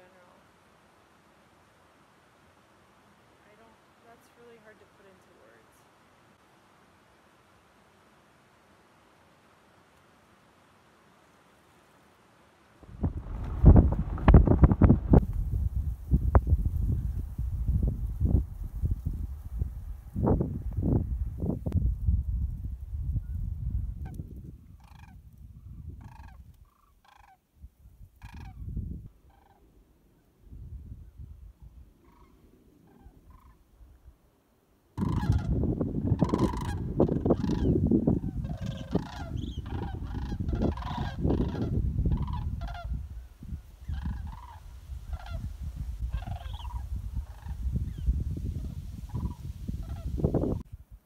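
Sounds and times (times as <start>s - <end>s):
wind rumbling on microphone: 12.8s - 29.8s, 30.4s - 34.2s, 35.0s - 51.0s
waterbirds honking: 35.0s - 35.6s, 36.2s - 37.8s, 38.4s - 42.9s.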